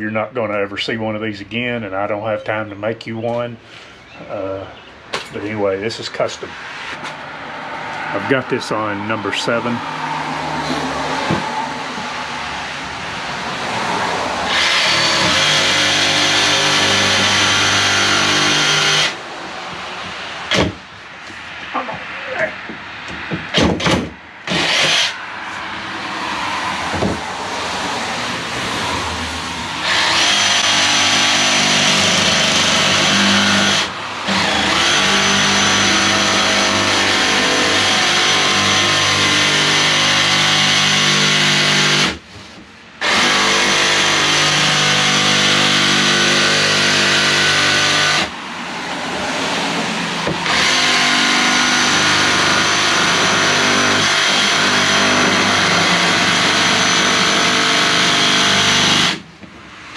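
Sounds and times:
jigsaw cutting a plank: 14.4 - 19.2, 23.6 - 25.2, 29.8 - 42.2, 43.0 - 48.3, 50.2 - 59.2.

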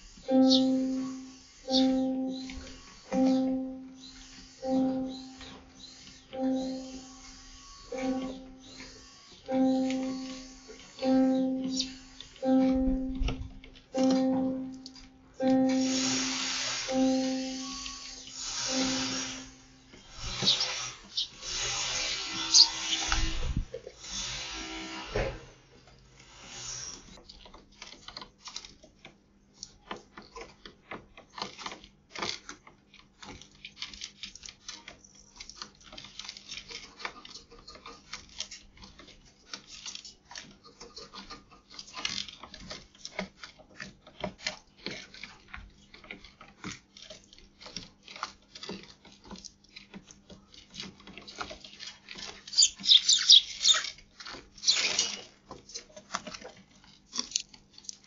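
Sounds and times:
beaks tapping on ledge: 52.5 - 53.9.

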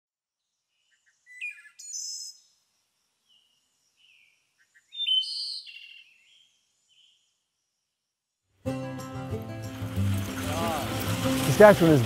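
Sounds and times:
small birds calling: 0.6 - 8.0.

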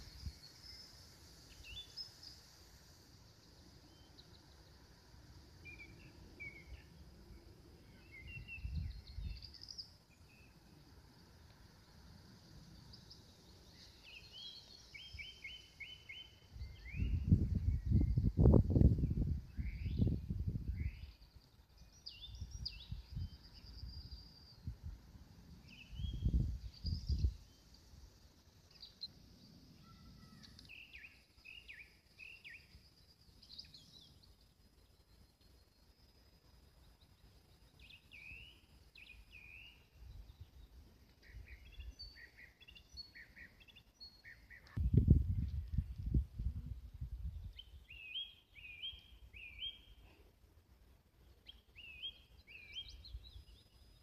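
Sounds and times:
birds chirping and twittering: 0.0 - 46.2, 46.8 - 54.0
low rumbling on microphone: 44.8 - 47.6.

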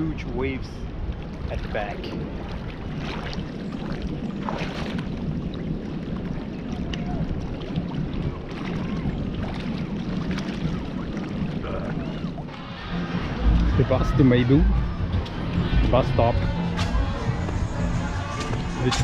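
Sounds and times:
waves lapping on rocky shore: 0.0 - 14.2
wind noise on microphone: 0.0 - 19.0.

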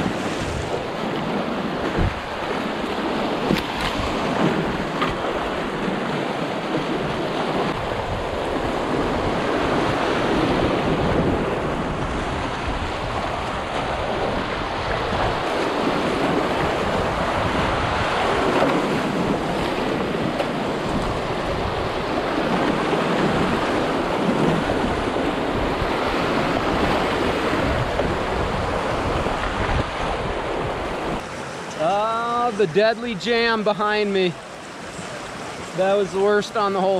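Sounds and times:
whitewater rushing over rocks: 13.0 - 36.9.

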